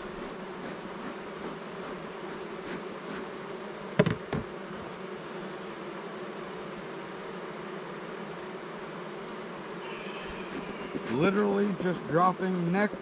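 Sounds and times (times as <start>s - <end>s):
bees buzzing: 0.0s - 13.0s
sharp knocks: 4.0s - 4.5s.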